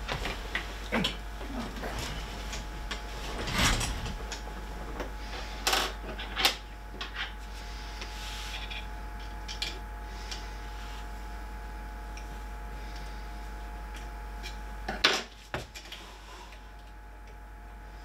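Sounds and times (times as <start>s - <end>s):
scraping rustle of parts: 1.4s - 6.4s.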